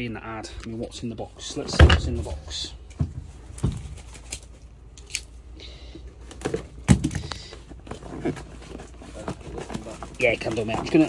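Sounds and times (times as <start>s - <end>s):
cardboard scraping: 6.4s - 11.0s.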